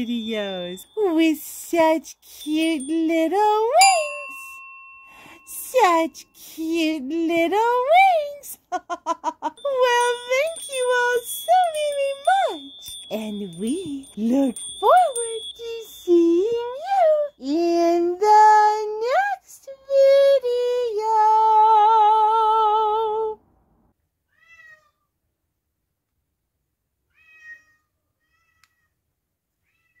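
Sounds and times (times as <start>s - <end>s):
cat meowing: 24.3s - 25.0s, 27.1s - 28.9s.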